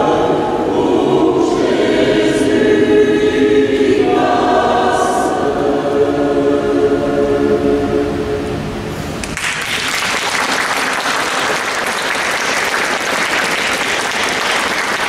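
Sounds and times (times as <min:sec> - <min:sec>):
choir singing chord: 0:00.0 - 0:08.9
audience applauding: 0:09.2 - 0:15.0.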